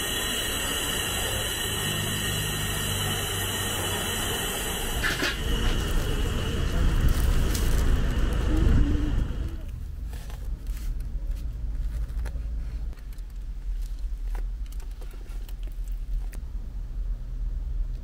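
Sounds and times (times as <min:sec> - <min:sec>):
low rumble inside car: 0:00.2 - 0:10.4.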